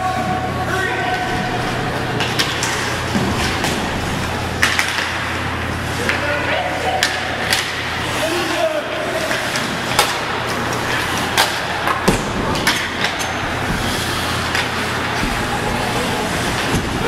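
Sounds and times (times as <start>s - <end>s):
arena hum and hiss: 0.0s - 17.0s
hockey sticks knocking puck: 2.2s - 6.2s, 6.8s - 17.0s
skates on ice: 7.5s - 17.0s.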